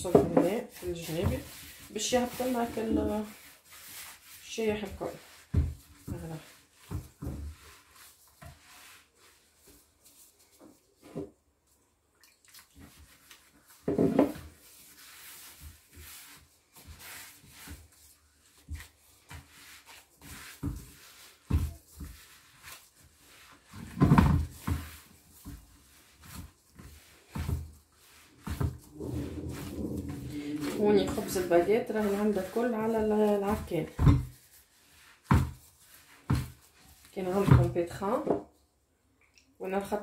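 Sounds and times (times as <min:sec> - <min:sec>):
dough squishing: 0:00.0 - 0:38.3
bowl bumps: 0:28.5 - 0:31.5.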